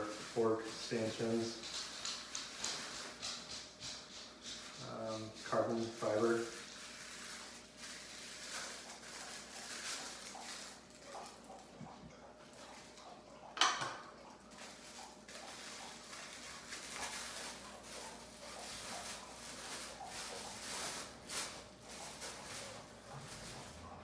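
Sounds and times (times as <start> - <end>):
plastic bags crinkling: 5.5 - 11.7, 14.2 - 24.0.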